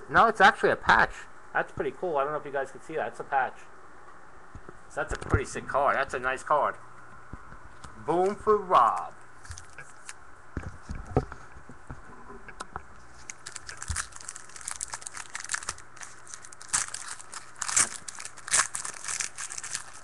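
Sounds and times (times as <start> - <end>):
foil wrapper tearing and crinkling: 13.2 - 20.0.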